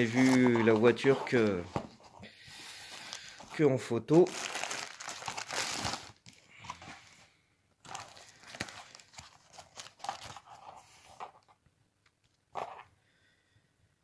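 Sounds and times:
bubble wrap crinkling: 0.0s - 1.6s, 2.7s - 7.1s, 7.8s - 10.6s.

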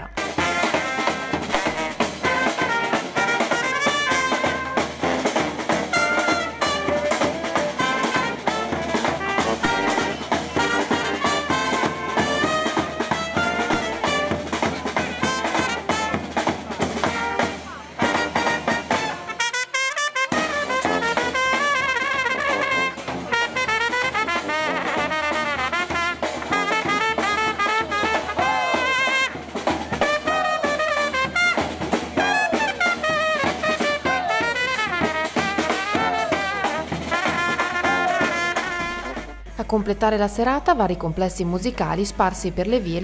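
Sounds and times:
bass drum: 0.0s - 19.2s
snare drum: 0.0s - 39.5s
brass band playing: 0.0s - 43.0s.

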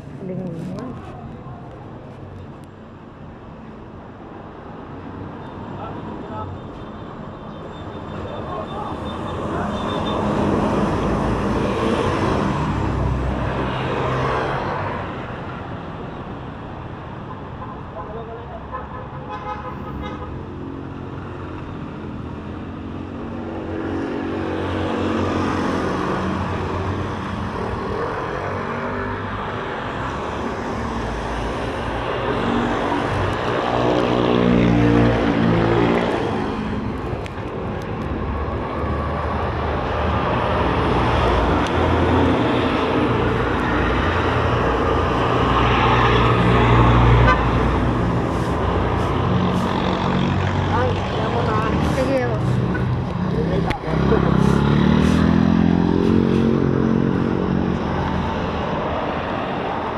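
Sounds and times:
passing vehicles rumbling: 0.0s - 59.9s
engine passing by: 38.1s - 59.9s
trailer truck passing: 38.2s - 59.9s.

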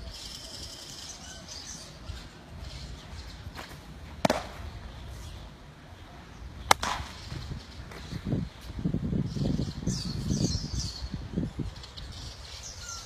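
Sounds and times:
baseball smacking into leather glove: 3.6s - 4.7s, 6.7s - 7.2s.

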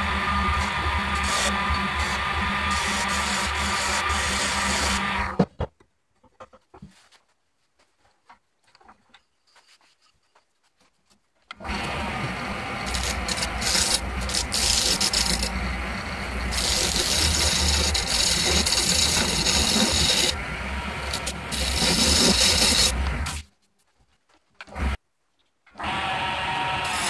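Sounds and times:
lathe motor hum: 0.0s - 5.4s, 11.6s - 23.4s
turning tool scraping wood: 11.6s - 23.5s.

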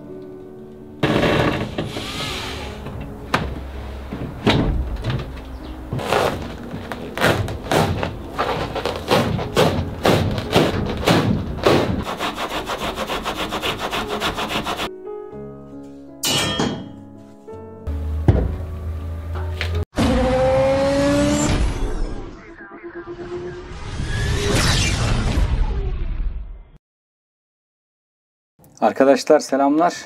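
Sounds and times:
background music: 0.0s - 19.8s.

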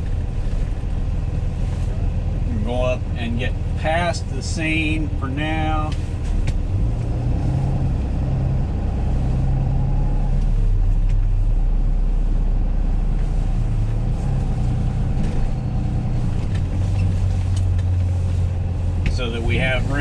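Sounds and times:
road noise: 0.0s - 20.0s
truck engine drone: 0.0s - 20.0s.

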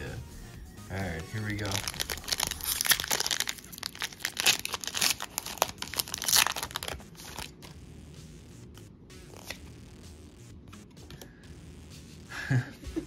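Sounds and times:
foil wrapper tearing and crinkling: 1.5s - 7.7s.

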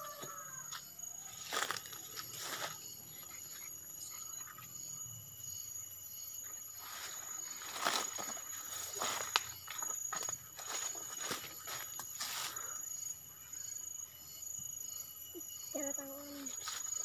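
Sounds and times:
footsteps through undergrowth: 0.1s - 2.9s, 6.8s - 12.8s
rustling undergrowth: 1.3s - 3.4s, 6.8s - 12.8s.

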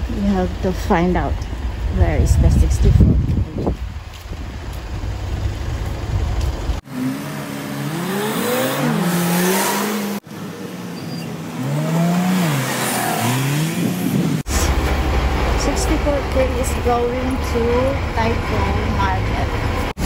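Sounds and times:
low engine rumble: 0.0s - 6.9s, 14.0s - 20.0s
vehicles accelerating and slowing: 0.0s - 20.0s.

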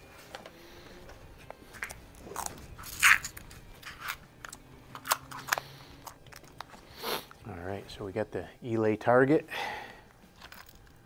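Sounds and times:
clicks and rustles of handling gear: 0.3s - 7.4s, 10.3s - 11.0s.

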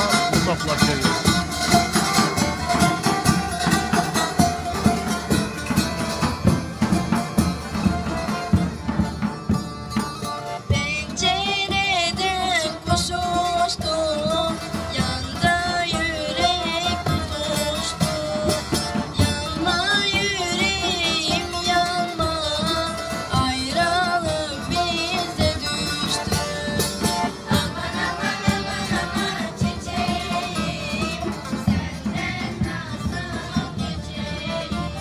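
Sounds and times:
accordion: 0.0s - 35.0s
woman singing with vibrato: 10.7s - 35.0s.

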